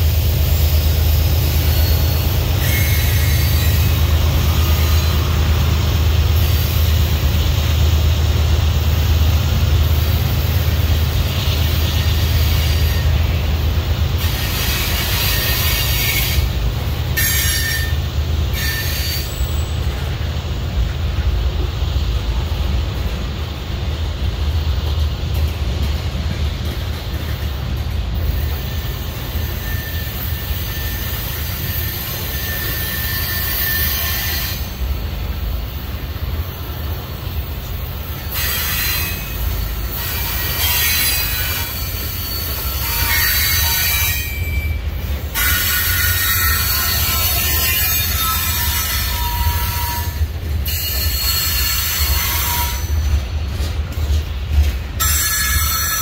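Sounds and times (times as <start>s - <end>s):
freight train wheels rumbling: 0.0s - 56.0s
high-pitched wheel squeal: 1.6s - 5.4s, 17.2s - 19.8s, 28.6s - 34.8s, 38.3s - 53.0s.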